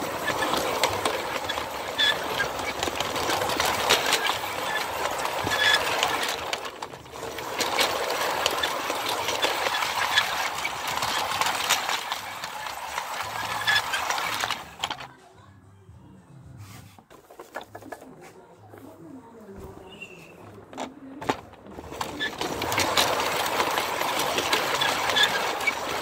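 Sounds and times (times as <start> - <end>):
model train rattling on track: 0.0 - 15.2, 20.5 - 26.0
wheels clicking on rails: 0.0 - 15.2, 16.9 - 26.0.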